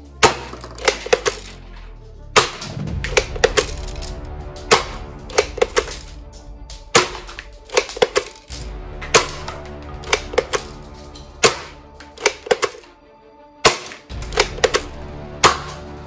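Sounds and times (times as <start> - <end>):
clicking percussive beat: 2.4 - 12.8, 13.6 - 16.0.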